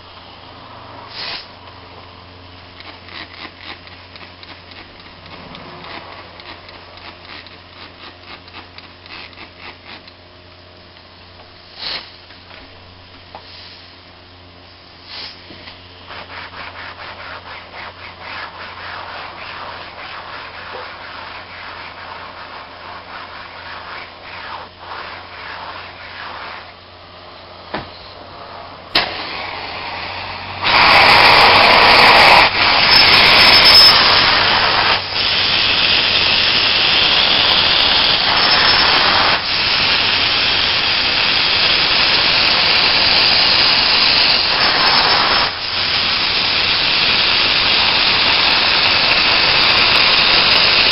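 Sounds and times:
low steady hum: 0.0s - 32.6s
steam cleaner rushing hiss: 0.8s - 1.6s, 11.6s - 12.3s, 13.3s - 14.1s, 14.9s - 26.8s, 27.8s - 50.9s
fabric being scrubbed: 16.1s - 26.8s.

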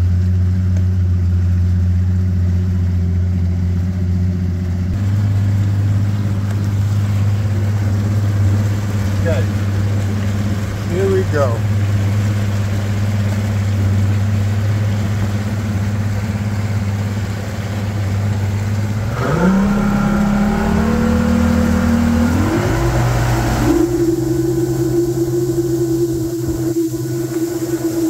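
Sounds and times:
outboard engine revving up: 0.0s - 28.0s.

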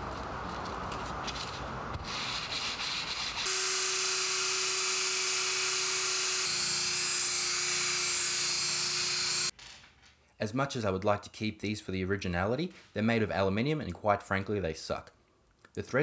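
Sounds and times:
electric drill grinding metal: 3.4s - 9.5s.

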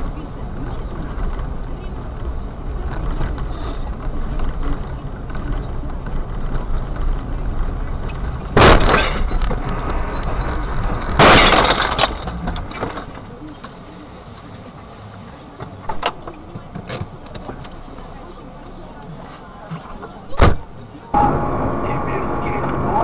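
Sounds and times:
road rumble: 0.0s - 23.0s
car crash impacts: 8.5s - 9.8s, 10.8s - 13.2s.

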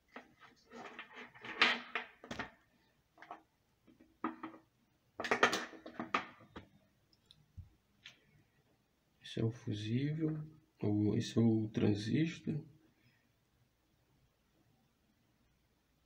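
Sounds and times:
circuit board and tools clattering: 3.2s - 6.6s.

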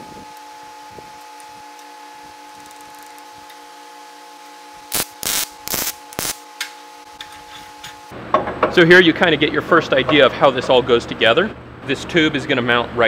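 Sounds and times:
welder arc crackling: 2.5s - 3.3s, 4.8s - 6.5s.

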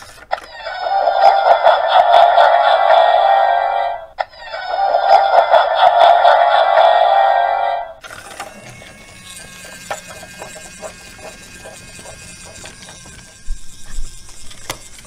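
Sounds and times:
toy train motor humming: 0.0s - 15.0s
spooky toy sound effect: 0.3s - 11.4s.

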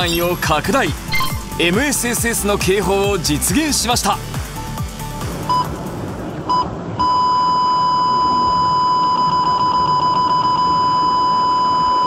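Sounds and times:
radar detector beep tone: 0.0s - 0.5s, 1.1s - 1.5s, 6.5s - 12.0s.

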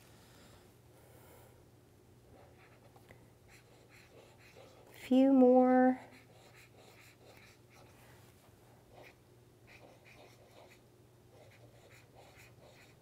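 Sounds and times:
marker pen scratching on paper: 2.4s - 5.0s, 6.0s - 8.0s, 8.9s - 13.0s.

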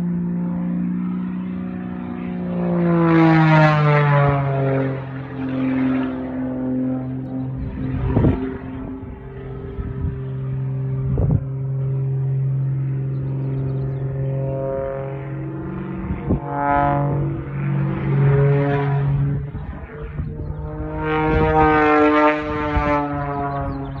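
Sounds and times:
propeller plane engine droning: 0.0s - 24.0s.

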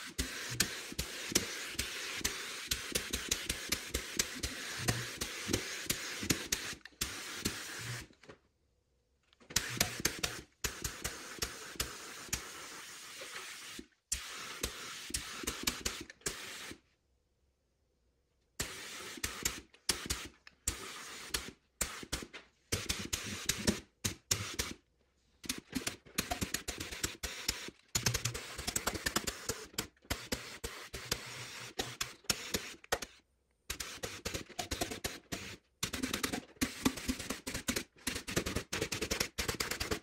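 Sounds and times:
paint spray gun hissing: 0.0s - 8.1s, 9.6s - 16.8s, 18.6s - 22.2s, 26.3s - 27.7s, 28.3s - 32.8s, 33.8s - 35.6s.

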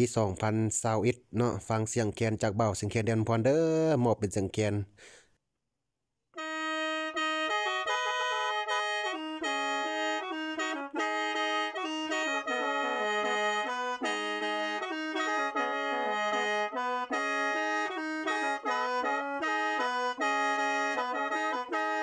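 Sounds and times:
mouth organ melody: 6.4s - 22.0s.

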